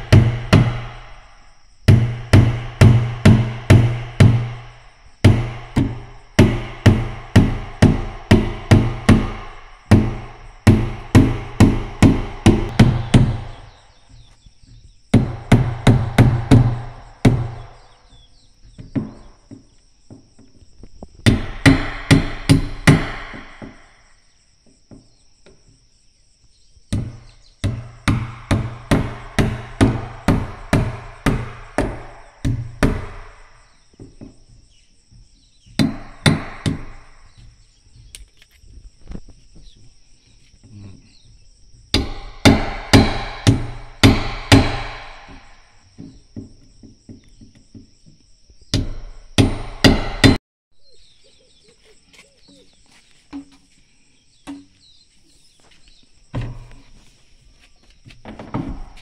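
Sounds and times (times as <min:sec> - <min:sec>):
high insect whine: 0:00.0 - 0:59.0
hammer blows ringing: 0:01.9 - 0:13.8, 0:21.3 - 0:23.9, 0:27.0 - 0:33.6, 0:35.8 - 0:37.2, 0:41.9 - 0:45.8, 0:48.8 - 0:50.4.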